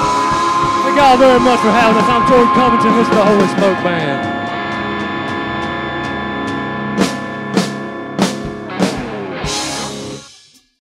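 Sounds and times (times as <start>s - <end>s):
big drum hits: 0.0s - 5.8s
electric guitar chord ringing: 0.0s - 10.4s
cymbal crash: 0.0s - 10.5s.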